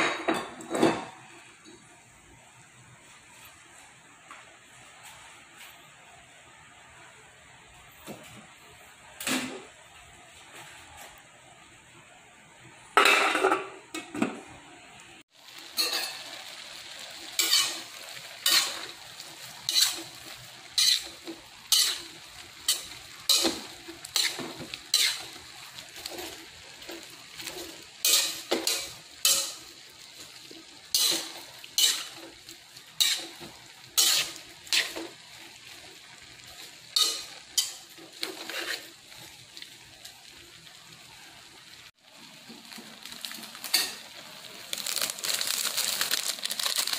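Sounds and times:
low sizzle: 0.0s - 46.9s
spatula scraping in wok: 15.6s - 39.4s.

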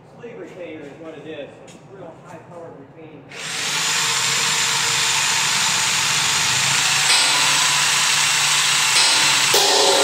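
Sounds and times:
machine running with loud hiss: 3.4s - 10.0s.

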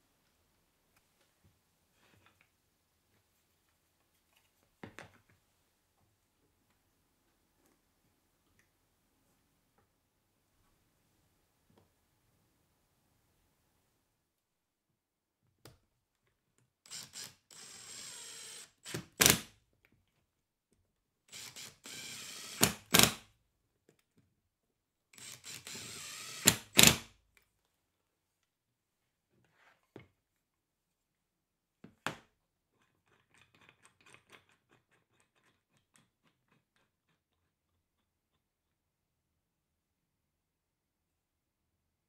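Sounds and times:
drill-driver whirring: 16.9s - 19.4s, 21.3s - 23.2s, 25.2s - 27.1s.

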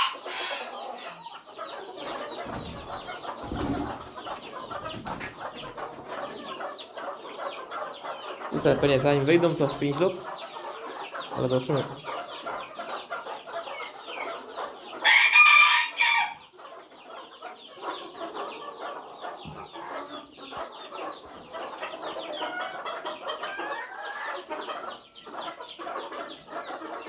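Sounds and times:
chickens clucking: 0.0s - 27.0s
loud drawn-out chicken call: 15.0s - 16.4s.

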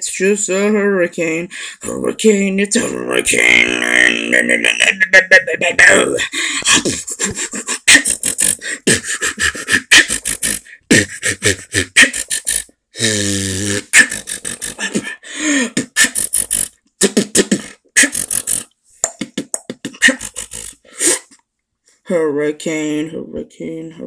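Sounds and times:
vocal beatboxing: 2.8s - 21.4s
held vocal note: 7.9s - 18.7s.

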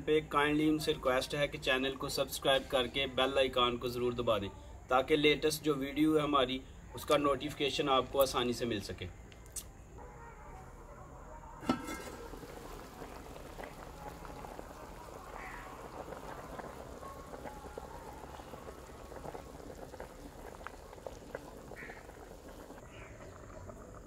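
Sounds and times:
water boiling hard in a pot: 11.6s - 24.0s.

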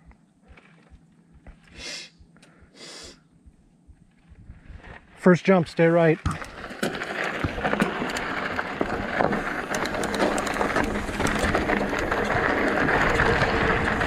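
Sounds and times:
tyre and wind rush: 4.0s - 14.0s
stones and bike rattling: 4.1s - 14.0s.

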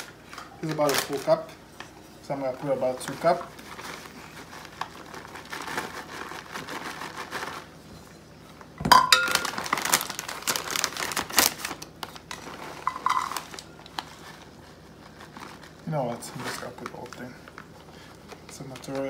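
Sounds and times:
plastic bag crinkling: 0.0s - 1.6s, 2.5s - 7.8s, 9.0s - 19.0s
cup clinking against glass bowl: 8.8s - 9.5s.

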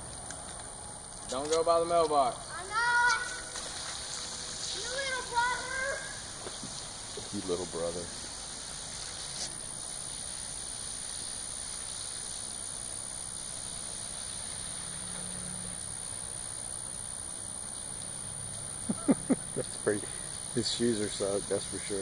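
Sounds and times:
rain on wet pavement: 2.9s - 9.5s.

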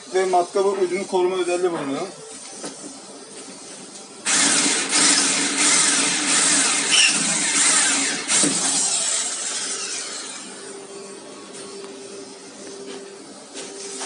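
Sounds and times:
electric drill grinding into metal: 4.2s - 10.7s.

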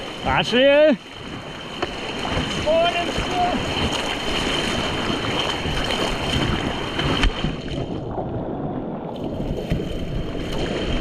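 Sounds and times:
rushing whitewater: 0.0s - 7.8s
wind buffeting microphone: 0.0s - 11.0s.

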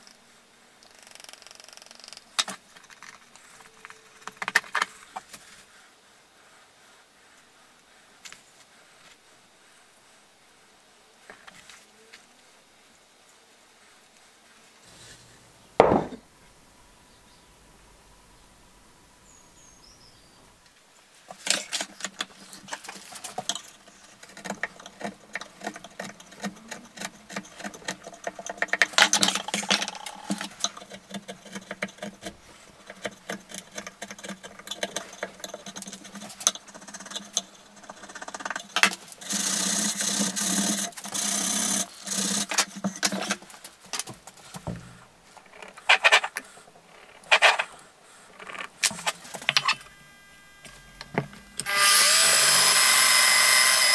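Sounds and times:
chisel scraping wood: 21.4s - 43.6s.

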